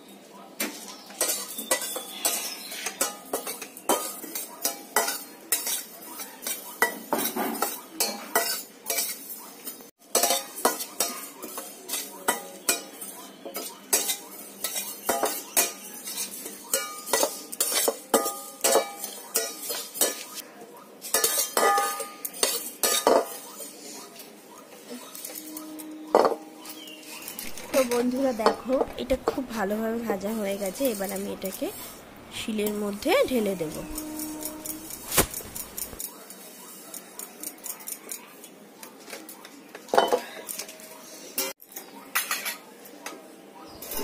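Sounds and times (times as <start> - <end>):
metal spatula scraping frying pan: 1.2 - 20.4, 33.6 - 36.0.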